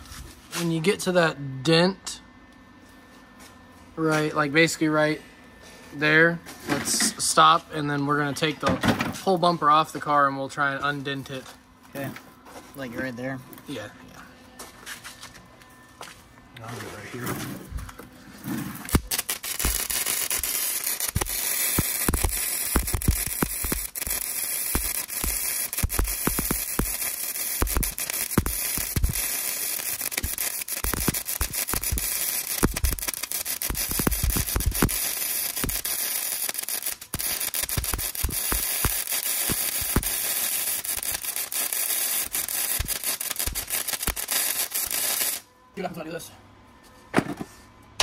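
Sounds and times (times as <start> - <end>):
arc welder crackling hiss: 18.8 - 45.5
sharp welding pops: 18.9 - 45.4.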